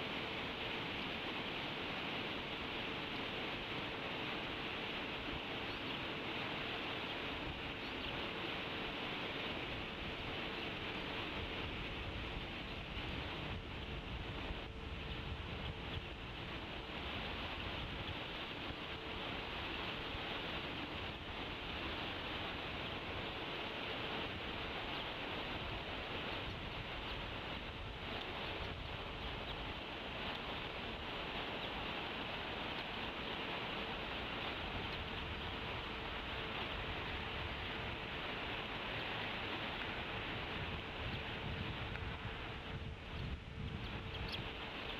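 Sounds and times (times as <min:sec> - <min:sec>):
faint steady hum: 0:00.0 - 0:44.9
outdoor background hiss: 0:00.0 - 0:44.9
eagle chicks peeping: 0:43.7 - 0:44.9.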